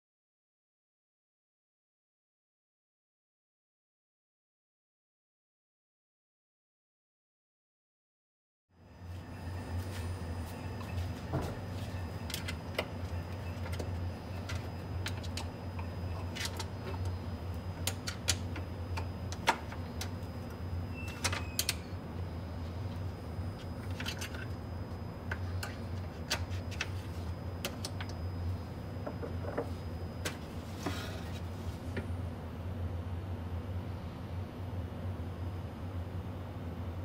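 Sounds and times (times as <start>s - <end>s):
steady low hum: 8.8s - 37.0s.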